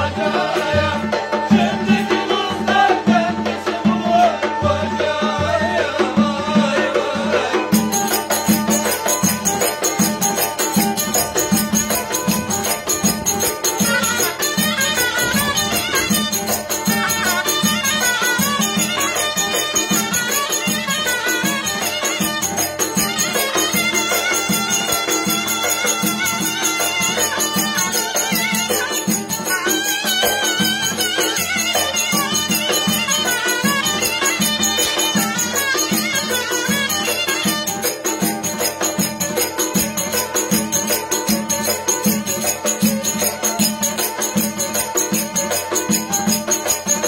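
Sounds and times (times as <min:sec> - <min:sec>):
reed pipe and fiddle melody: 0:07.8 - 0:47.0.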